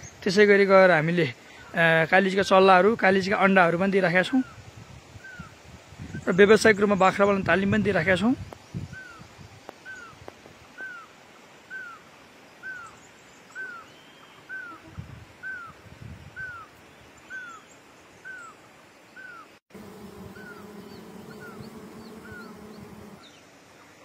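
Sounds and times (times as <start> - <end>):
honeybees buzzing: 19.7 - 23.4
bird whistling: 20.3 - 23.3.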